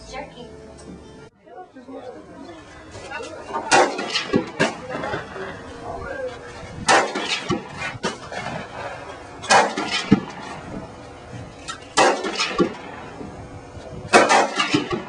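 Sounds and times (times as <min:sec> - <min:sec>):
rifle shots: 0:03.7 - 0:04.8, 0:06.8 - 0:08.8, 0:09.4 - 0:10.7, 0:11.7 - 0:13.1, 0:14.1 - 0:15.0.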